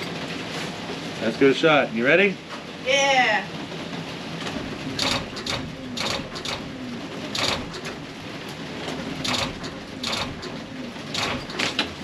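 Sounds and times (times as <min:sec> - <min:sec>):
starter mechanical clicks and rasps: 0:05.0 - 0:06.7, 0:07.3 - 0:08.0, 0:09.2 - 0:11.9.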